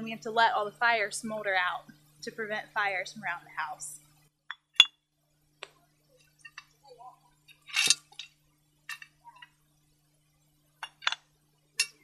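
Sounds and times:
bricks clinking and knocking: 0:10.8 - 0:11.2.

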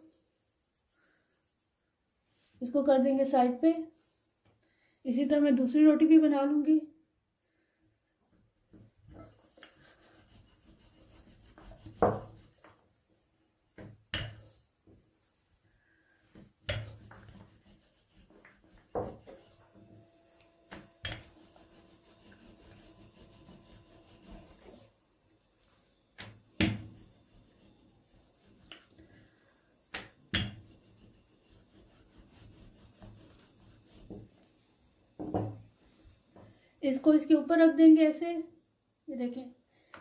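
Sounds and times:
rolling pin rubbing on dough: 0:00.0 - 0:02.6, 0:09.0 - 0:13.0, 0:13.8 - 0:36.2.

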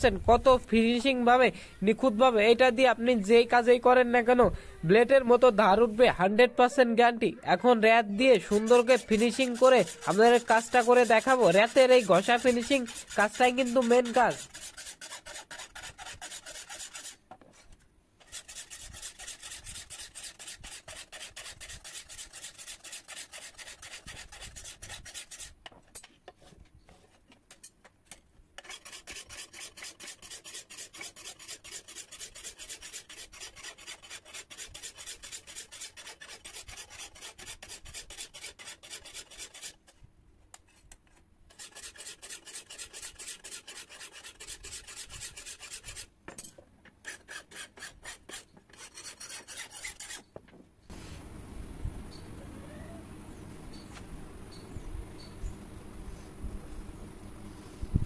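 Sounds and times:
hand file rasping on steel: 0:08.4 - 0:17.2, 0:18.2 - 0:25.6, 0:28.6 - 0:40.0, 0:41.5 - 0:46.1, 0:47.0 - 0:50.3.

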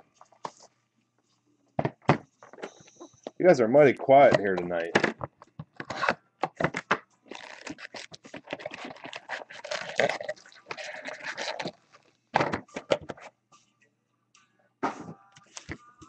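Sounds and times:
foil packs crinkling: 0:07.3 - 0:12.1.

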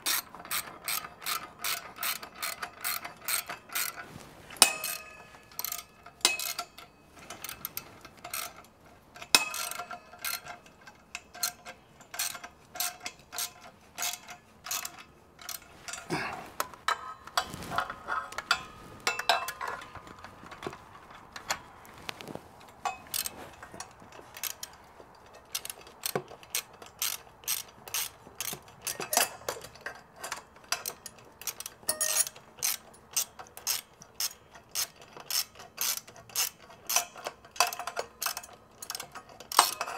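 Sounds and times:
ratchet wrench clicking: 0:00.0 - 0:04.0, 0:04.6 - 0:08.6, 0:09.2 - 0:15.6, 0:23.1 - 0:23.3, 0:24.3 - 0:39.9
metallic clinks: 0:00.8 - 0:17.2, 0:28.4 - 0:32.4.

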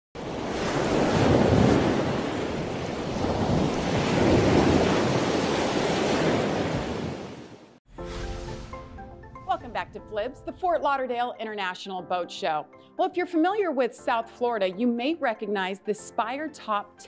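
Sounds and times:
ocean waves washing in: 0:00.2 - 0:10.8.

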